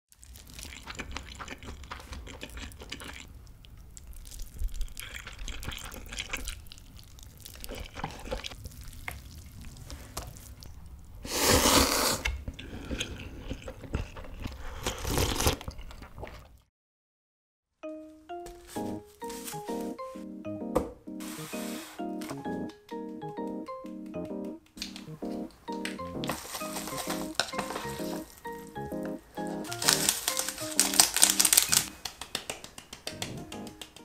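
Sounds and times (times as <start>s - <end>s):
chewing food: 0.1s - 10.9s, 12.2s - 16.7s, 24.7s - 32.0s
slurping noodles: 0.2s - 3.3s, 4.4s - 6.8s, 7.4s - 10.4s, 11.2s - 16.6s, 26.6s - 28.5s.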